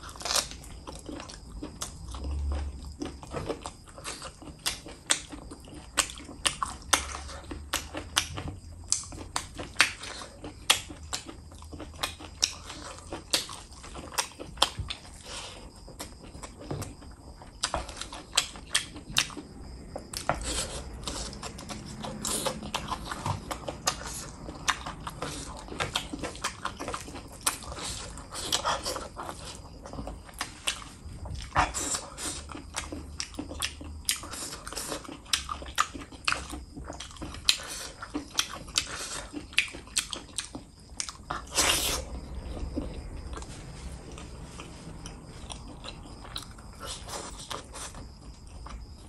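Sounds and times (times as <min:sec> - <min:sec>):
wet mouth smacks and chewing: 0:30.3 - 0:42.0.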